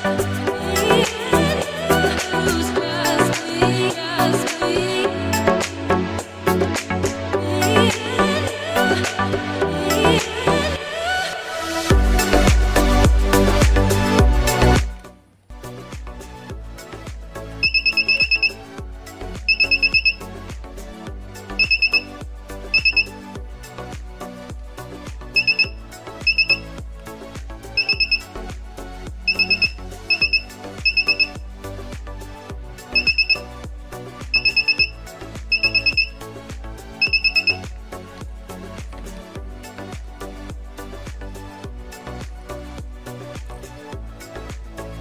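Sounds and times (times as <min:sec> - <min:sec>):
background music with steady beat: 0:00.0 - 0:45.0
buzzer beeping rapidly: 0:17.6 - 0:18.6, 0:19.5 - 0:20.2, 0:21.6 - 0:22.1, 0:22.7 - 0:23.2, 0:25.4 - 0:26.7, 0:27.8 - 0:28.3, 0:29.3 - 0:31.4, 0:33.0 - 0:33.5, 0:34.3 - 0:36.2, 0:37.0 - 0:37.7.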